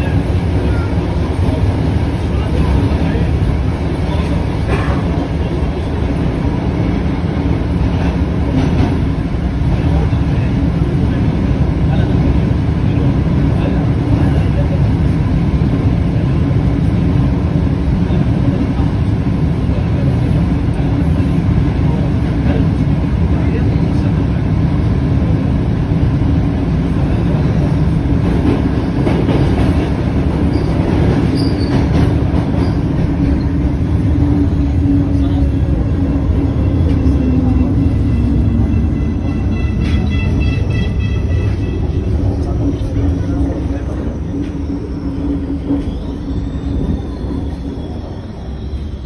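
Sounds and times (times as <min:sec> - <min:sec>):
train wheels rumbling: 0:00.0 - 0:49.0
high squeal: 0:43.9 - 0:49.0.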